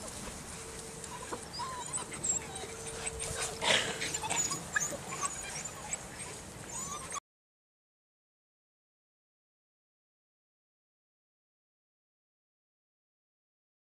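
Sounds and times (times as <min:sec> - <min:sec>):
puppies squeaking and crying: 0:01.0 - 0:07.2.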